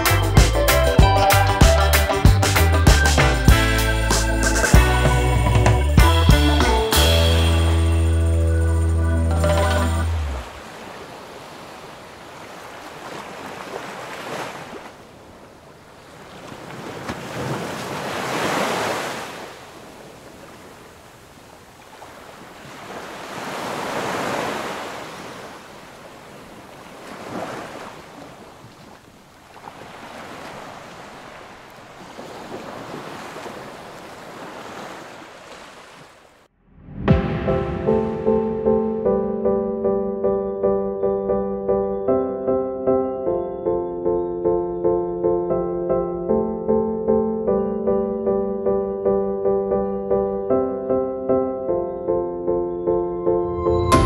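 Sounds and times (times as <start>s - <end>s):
music: 0.0s - 10.5s, 36.8s - 54.0s
wind: 0.0s - 54.0s
sea waves washing in: 9.4s - 40.1s.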